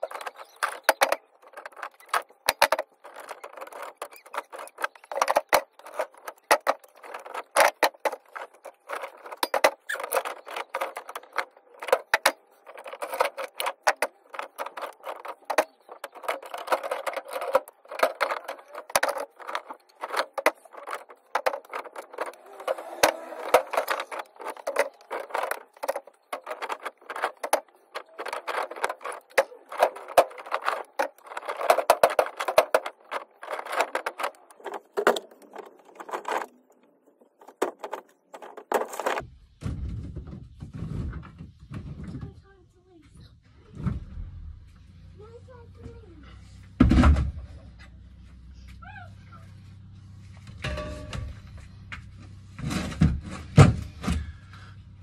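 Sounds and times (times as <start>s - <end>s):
metal cable clinking and clattering: 0.0s - 39.2s, 50.5s - 51.6s.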